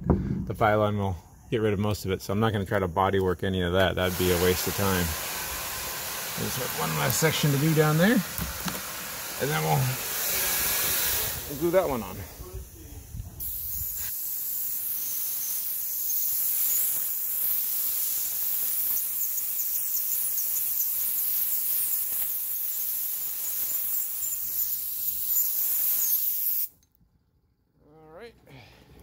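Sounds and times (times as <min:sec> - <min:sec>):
spray gun hissing: 0:04.0 - 0:26.7.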